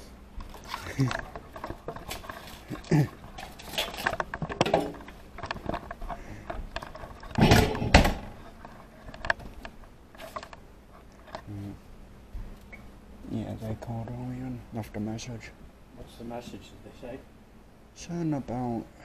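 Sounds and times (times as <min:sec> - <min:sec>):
objects clattering: 0:00.4 - 0:10.6
objects clicking and knocking: 0:00.4 - 0:10.6.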